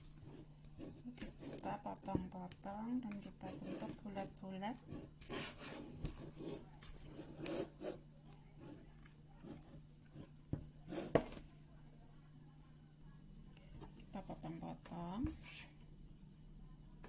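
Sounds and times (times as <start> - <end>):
dough rubbing and scraping: 0.0 - 11.6
steady low hum: 0.0 - 17.0.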